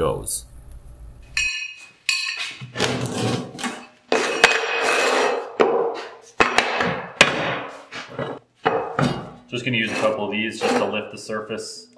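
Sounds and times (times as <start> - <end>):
metal plate scraping on table: 2.7 - 5.6, 7.9 - 8.4, 9.6 - 11.1
sharp knocks: 5.6 - 7.7.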